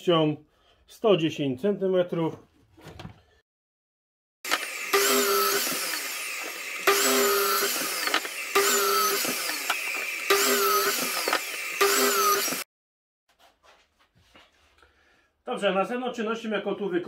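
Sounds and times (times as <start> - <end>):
power saw cutting wood: 4.4 - 12.7.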